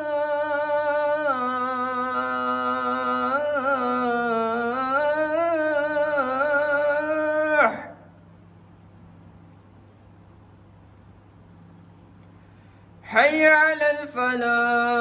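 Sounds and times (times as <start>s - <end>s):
man chanting call to prayer: 0.0s - 8.1s, 13.1s - 15.0s.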